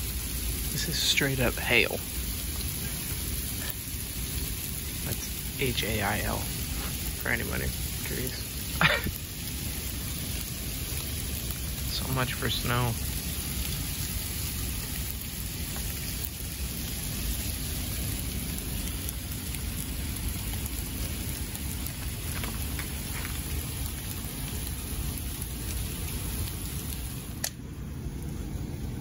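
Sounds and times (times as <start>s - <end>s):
hail pattering on ground and cars: 0.2s - 27.3s
sharp click: 27.4s - 27.6s.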